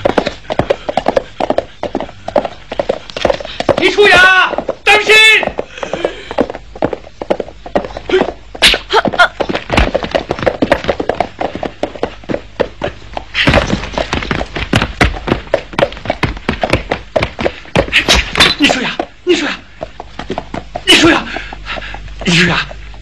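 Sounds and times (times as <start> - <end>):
sharp knocks and clacks: 9.4 - 19.1.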